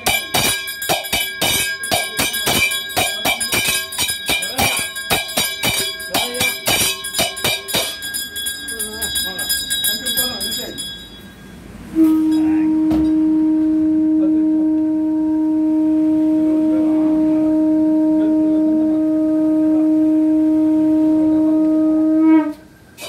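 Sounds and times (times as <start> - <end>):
conch shell blown: 11.8 - 23.0.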